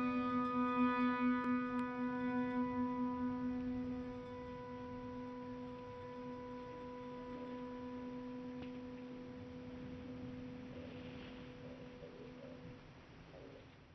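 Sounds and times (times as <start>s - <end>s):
sustained low tone with overtones: 0.0s - 13.4s.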